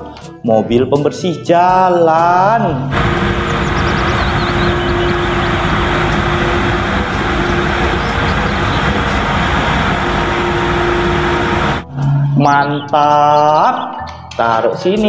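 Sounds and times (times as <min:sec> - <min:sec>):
road sweeper running: 0:02.9 - 0:11.8.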